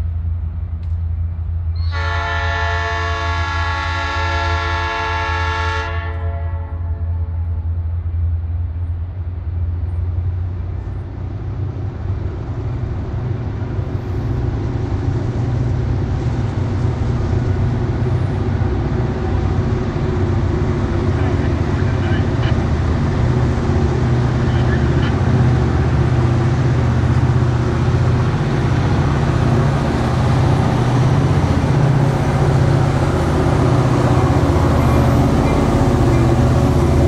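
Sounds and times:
low rumble of locomotives: 0.0s - 37.0s
locomotive air horn chord: 1.8s - 7.1s.

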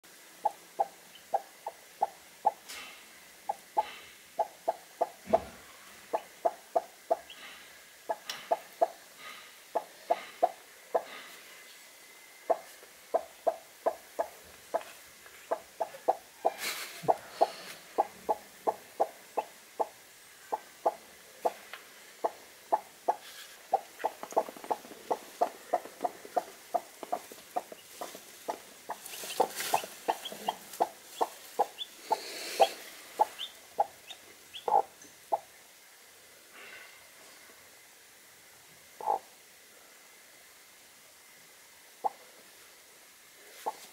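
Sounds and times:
hen clucking: 0.4s - 2.8s, 3.4s - 9.0s, 9.7s - 11.2s, 12.5s - 14.9s, 15.5s - 21.6s, 22.2s - 35.5s, 39.0s - 39.3s, 43.6s - 43.9s.

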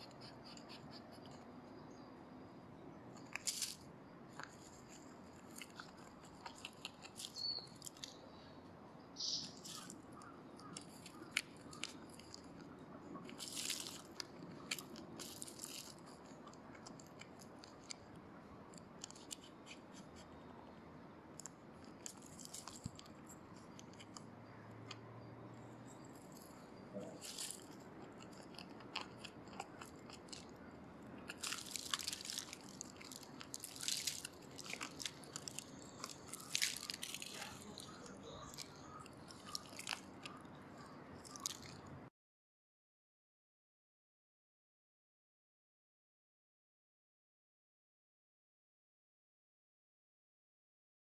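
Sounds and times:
leaf litter rustling and crackling: 13.4s - 14.1s, 27.2s - 27.7s, 31.3s - 38.6s.

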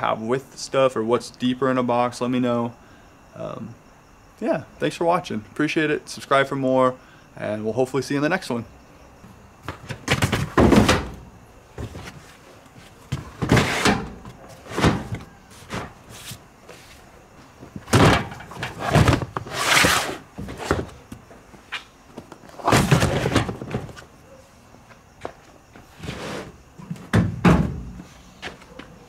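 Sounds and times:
plastic bins knocking and scraping: 9.6s - 16.4s, 17.6s - 21.3s, 22.2s - 24.1s, 25.9s - 28.1s.

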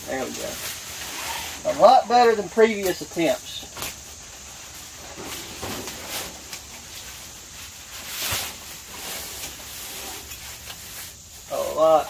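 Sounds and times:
fabric and mesh rustling: 0.0s - 12.0s.

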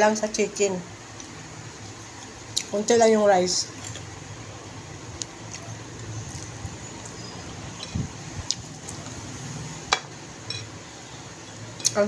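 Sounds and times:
wet chewing clicks and smacks: 5.2s - 7.2s.

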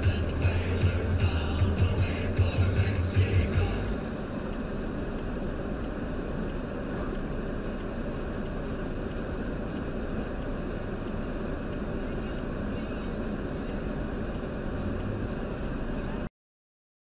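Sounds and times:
vehicle and road rumble: 0.0s - 16.3s.

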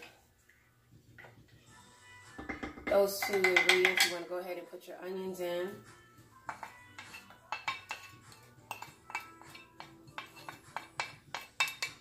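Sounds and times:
background music: 0.0s - 12.0s
spoon clinking on ceramic plate: 6.4s - 12.0s.

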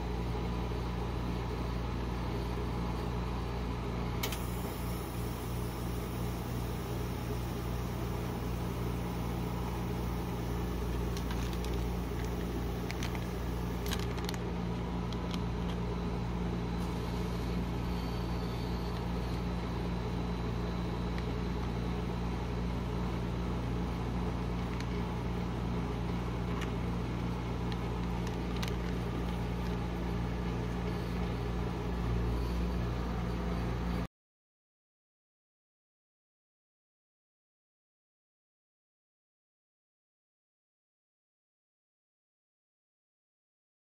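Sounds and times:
refrigeration unit humming: 0.0s - 34.1s.

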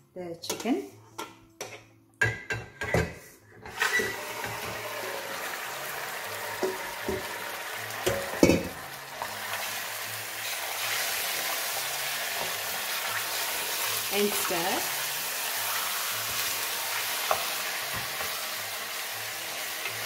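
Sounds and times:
chicken frying sizzle: 3.8s - 20.0s
spoon knocking against pot: 8.0s - 8.8s.

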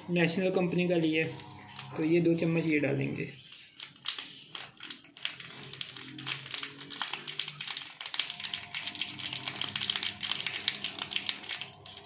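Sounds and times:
foil packet crinkling: 3.4s - 12.0s.

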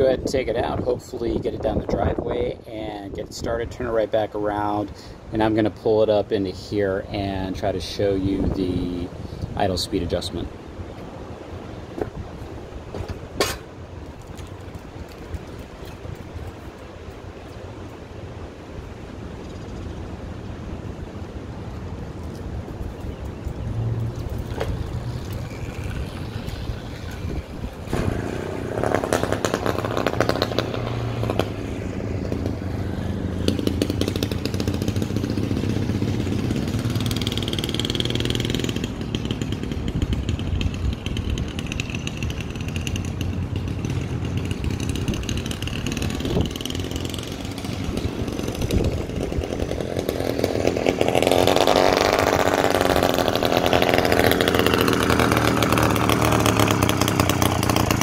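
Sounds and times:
small engine starting and running: 23.8s - 58.0s.

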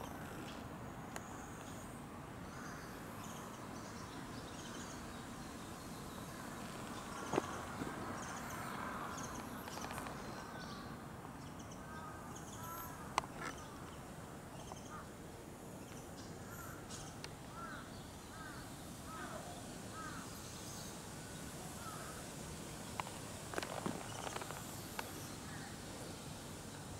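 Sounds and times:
faint outdoor hiss: 0.0s - 26.9s
crow cawing: 17.5s - 20.3s, 21.8s - 22.1s.

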